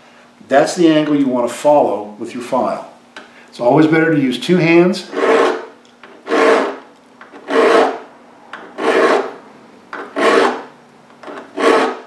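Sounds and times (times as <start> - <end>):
file rasping on saw chain: 5.1 - 8.0, 8.6 - 9.4, 10.0 - 12.0.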